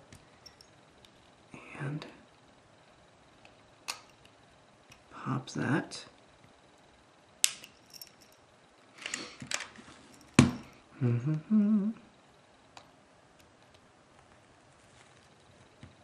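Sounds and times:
low hum: 0.0 - 5.3.

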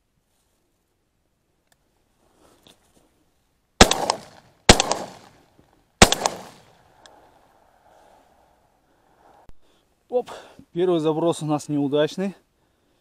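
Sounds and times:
shotgun shots echoing: 3.8 - 5.4, 6.0 - 6.8.

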